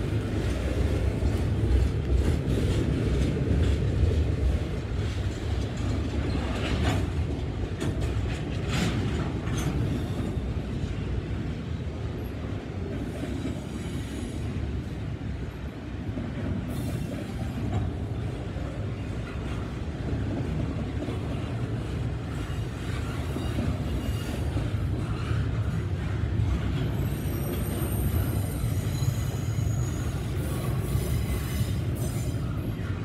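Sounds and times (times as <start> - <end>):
train wheels rumbling on rail: 0.0 - 33.0
high wheel squeal: 22.4 - 24.6, 27.0 - 32.7.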